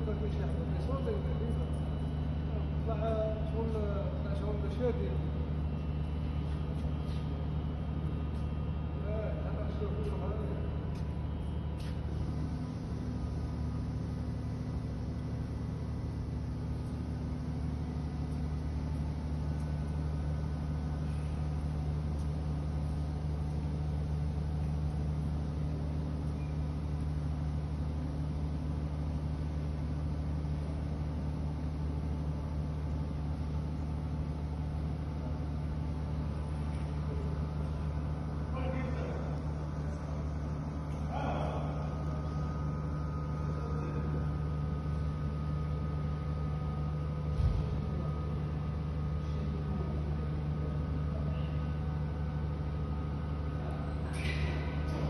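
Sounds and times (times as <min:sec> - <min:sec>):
machine line humming: 0:00.0 - 0:55.0.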